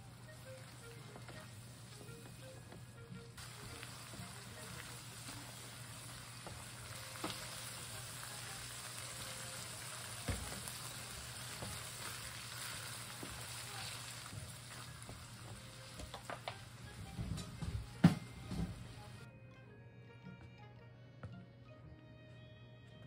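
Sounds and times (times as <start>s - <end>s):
meat sizzling in a frying pan: 3.4s - 16.9s.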